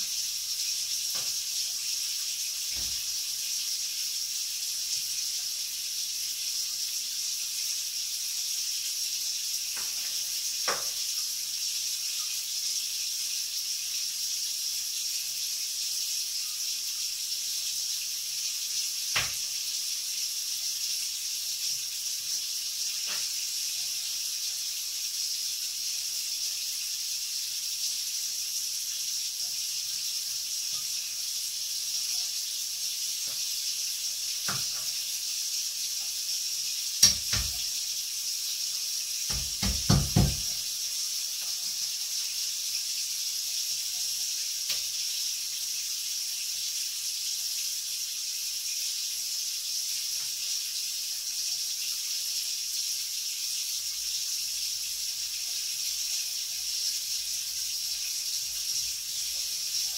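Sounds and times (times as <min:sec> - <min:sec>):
steady high hiss: 0:00.0 - 0:59.9
kitchenware clicks and knocks: 0:39.3 - 0:40.6.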